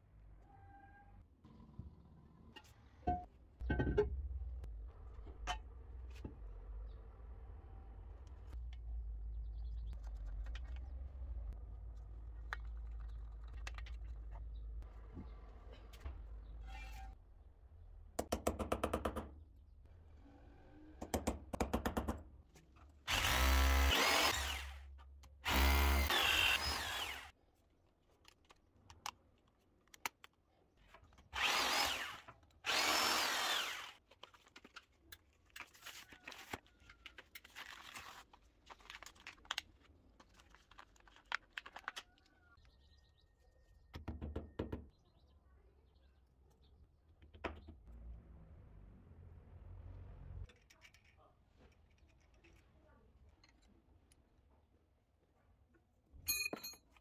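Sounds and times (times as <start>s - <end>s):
electric drill boring tiles: 23.1s - 24.8s, 25.4s - 27.3s, 31.4s - 34.0s.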